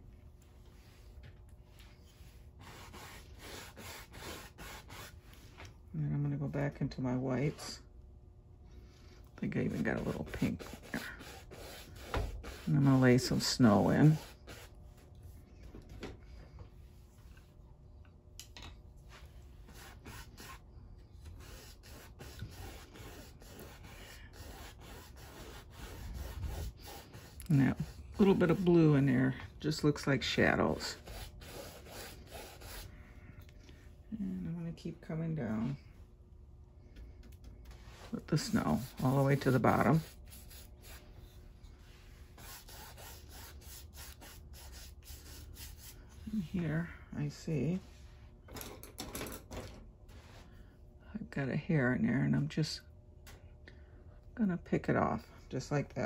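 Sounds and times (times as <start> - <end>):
paintbrush scrubbing on canvas: 1.8 - 5.6, 9.6 - 14.8, 19.1 - 20.6, 21.4 - 29.3, 30.4 - 32.9, 37.7 - 46.6.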